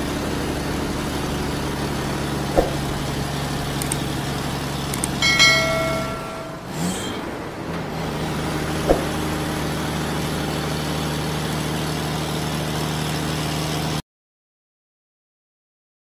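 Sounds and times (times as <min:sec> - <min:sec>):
motor hum: 0:00.0 - 0:13.4
click: 0:03.8 - 0:04.0, 0:04.9 - 0:05.2.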